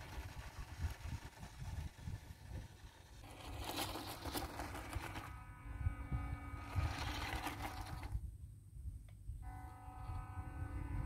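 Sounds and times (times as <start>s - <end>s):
electric motor whining: 0.0s - 8.2s, 9.4s - 11.0s
low rumble: 4.8s - 11.0s.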